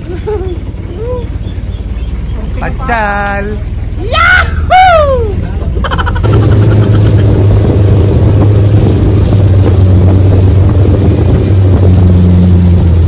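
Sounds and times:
boat engine running: 0.0 - 13.0
wind buffeting microphone: 5.6 - 13.0.

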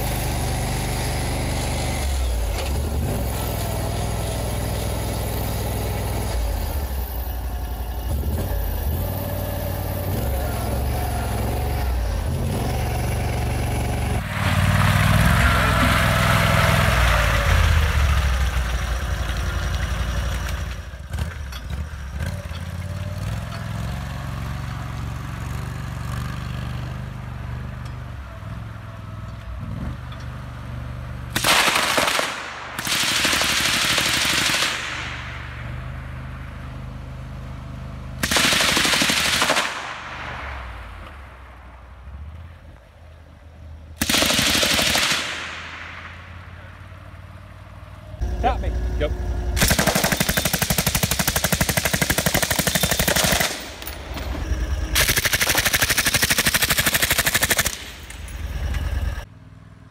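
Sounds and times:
vehicle engine running: 0.0 - 59.9
machine gun automatic fire: 31.4 - 35.5, 38.2 - 40.7, 44.0 - 46.2, 49.6 - 59.2.

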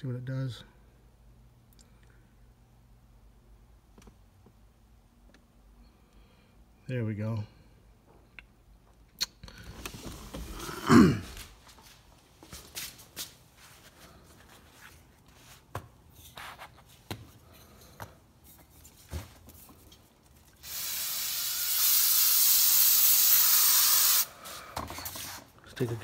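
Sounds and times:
aerosol can spraying hiss: 20.6 - 24.4.

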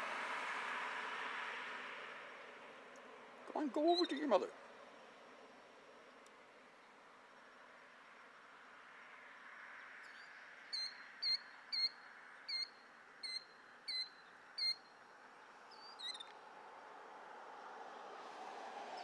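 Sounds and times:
killdeer calling: 3.6 - 4.4, 10.2 - 14.9, 15.7 - 16.4.

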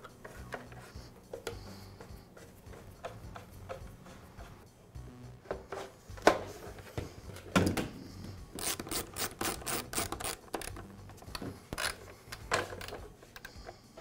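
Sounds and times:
screwdriver turning a screw: 8.5 - 13.5
plastic parts clicking and knocking: 8.6 - 13.8.

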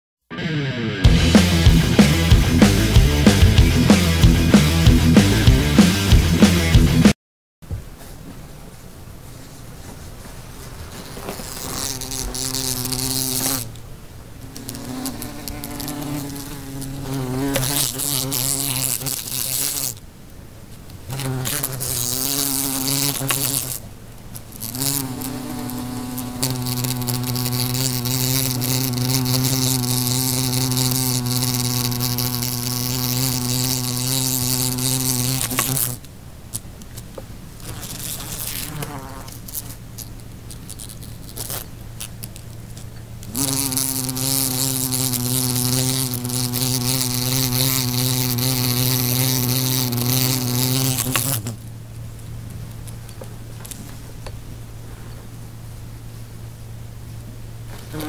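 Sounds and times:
fly buzzing: 1.1 - 7.2, 10.7 - 13.8, 14.4 - 20.0, 21.1 - 36.0, 37.6 - 42.3, 43.2 - 51.6, 57.7 - 58.0.

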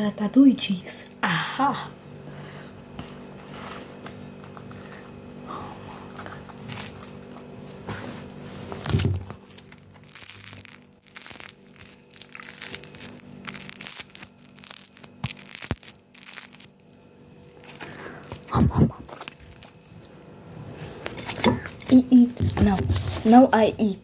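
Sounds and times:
crunching bites of sandwich: 8.8 - 20.1.

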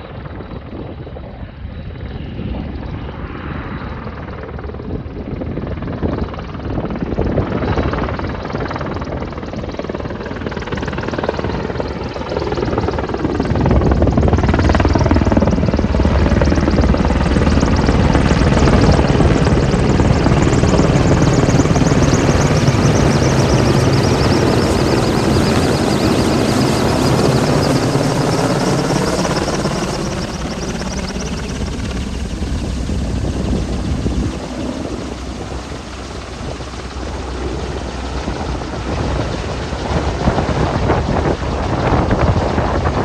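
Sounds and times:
high turbine whine: 7.8 - 43.0
helicopter rotor thudding: 11.7 - 43.0.

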